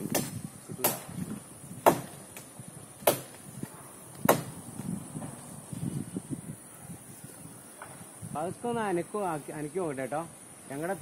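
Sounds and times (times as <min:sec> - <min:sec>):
axe chopping tree trunk: 0:00.0 - 0:04.6.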